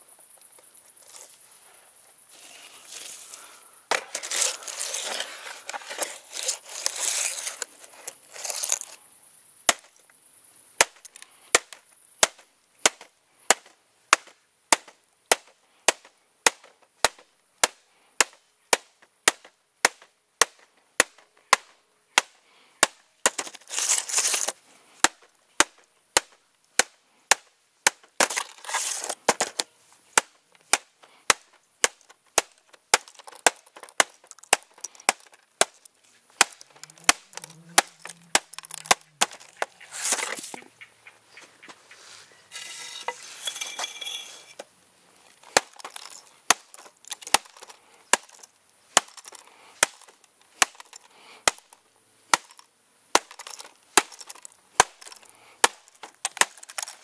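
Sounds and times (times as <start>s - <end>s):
rough scraping noise: 2.3s - 9.0s, 23.5s - 24.6s, 28.3s - 29.6s, 36.0s - 40.6s, 41.8s - 44.6s.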